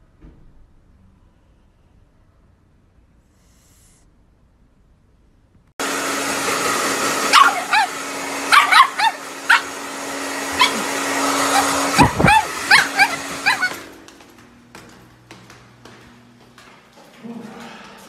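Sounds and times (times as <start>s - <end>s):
hair dryer humming: 5.8s - 14.6s
dog barking and yipping: 7.0s - 13.9s.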